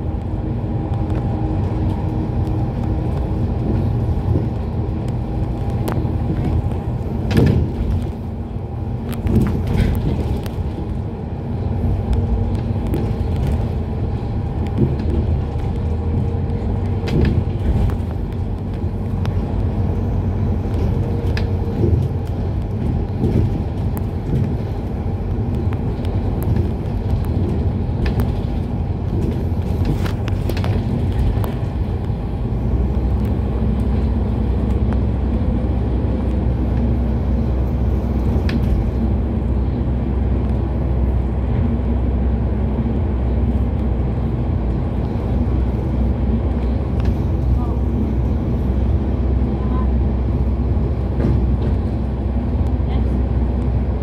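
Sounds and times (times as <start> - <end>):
bus drive drone: 0.0 - 54.0
bus body knocks and rattles: 1.0 - 39.9, 50.6 - 54.0.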